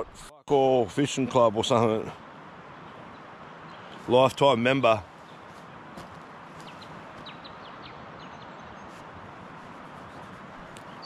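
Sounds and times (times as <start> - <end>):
flowing river: 0.0 - 11.0
bird chirping: 2.8 - 9.1, 9.9 - 11.0.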